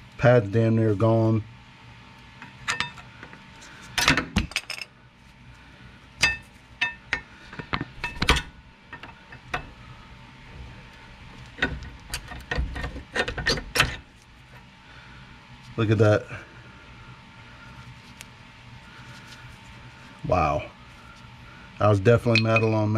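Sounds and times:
metal tools clinking: 22.2s - 22.8s.

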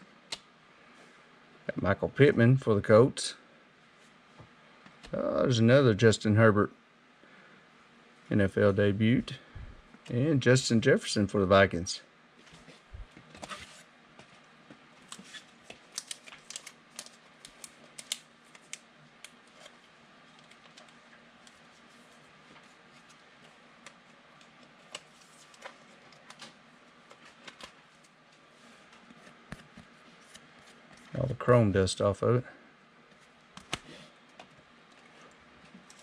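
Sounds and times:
trading cards clicking and rustling: 15.0s - 21.6s, 22.6s - 28.2s, 33.1s - 35.1s.

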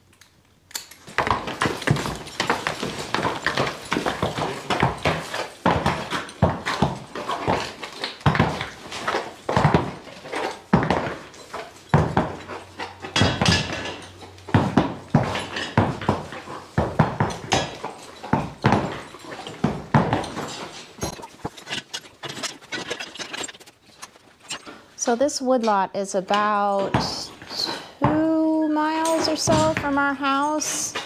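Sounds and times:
hoof thuds on dirt: 1.1s - 24.7s
metal dragging on dirt: 20.2s - 25.2s.

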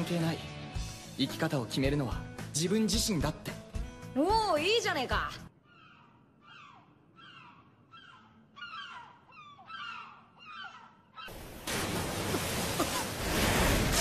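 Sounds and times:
seagulls crying: 5.5s - 11.6s
splashing water spray: 11.4s - 14.0s.

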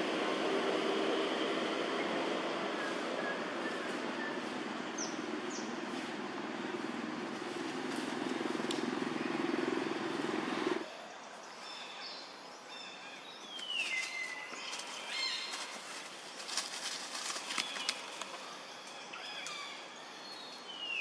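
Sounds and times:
steady low rumbling: 0.0s - 10.8s.

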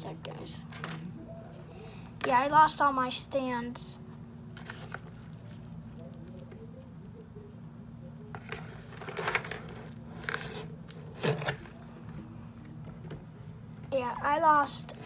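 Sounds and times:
steady low hum: 0.0s - 15.0s
handling noises on tabletop: 4.5s - 6.6s, 8.3s - 11.8s.

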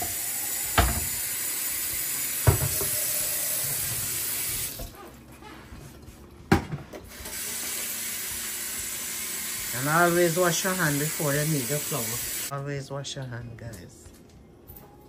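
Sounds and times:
tap water running: 0.0s - 5.1s, 6.5s - 12.5s
knocks at sink: 0.8s - 1.1s, 2.4s - 2.9s.

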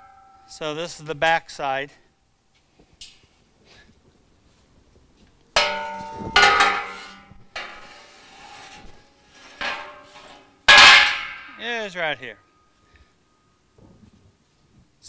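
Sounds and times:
metallic ringing: 0.0s - 2.3s, 5.6s - 13.7s
steel frames clanging: 5.6s - 13.6s.

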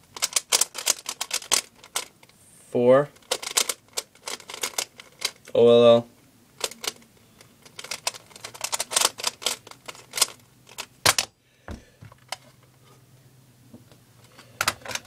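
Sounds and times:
puzzle cube clicking turns: 0.1s - 2.3s, 3.2s - 5.5s, 6.6s - 11.3s.

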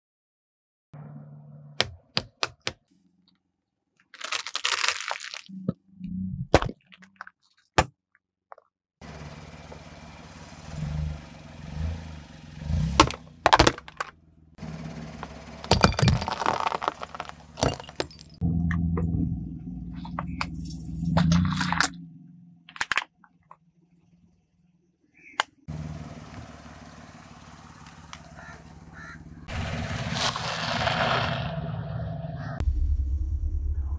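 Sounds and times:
sharp cracks and crunches: 4.0s - 5.5s, 15.6s - 18.4s, 30.0s - 31.4s
car tyre crushing plastic objects: 4.0s - 5.8s, 12.9s - 14.2s, 15.2s - 18.8s, 29.9s - 31.5s
low engine hum: 9.0s - 22.7s, 25.7s - 33.9s.

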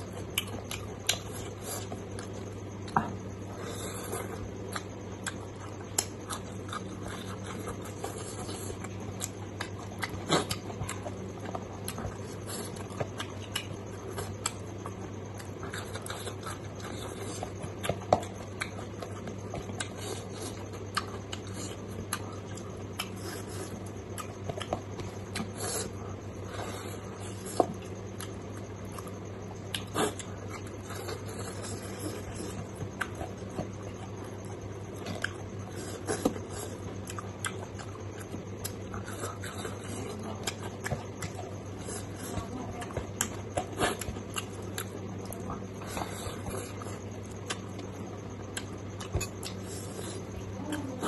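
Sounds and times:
wet chewing and lip smacking: 0.0s - 3.3s, 4.0s - 51.0s
steady low hum: 0.0s - 51.0s.

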